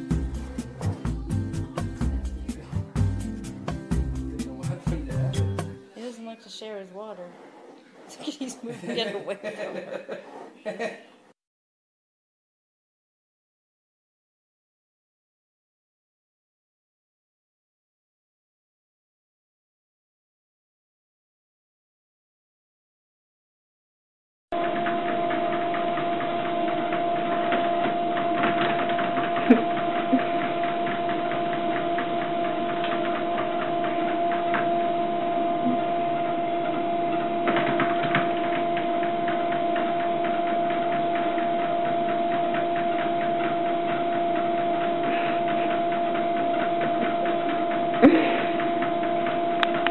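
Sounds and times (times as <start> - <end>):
treadmill motor whining: 24.6 - 49.9.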